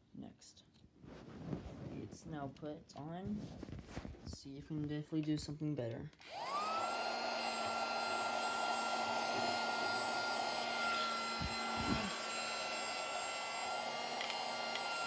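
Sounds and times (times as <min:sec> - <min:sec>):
handheld vacuum motor whine: 0:06.2 - 0:15.0.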